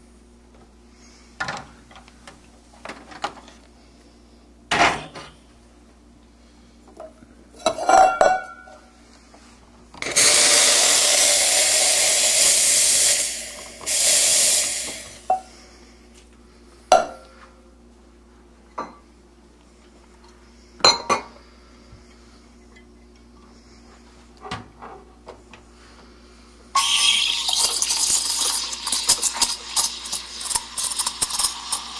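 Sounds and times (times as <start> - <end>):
steam wand hissing: 10.1 - 15.3, 26.8 - 31.9
cup and milk pitcher clinking: 26.8 - 31.9.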